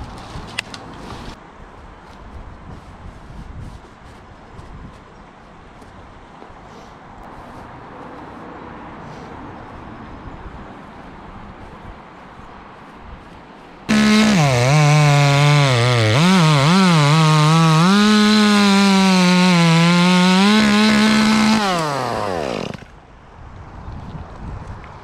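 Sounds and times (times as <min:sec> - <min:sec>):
chainsaw running at high revs: 0:13.9 - 0:22.9.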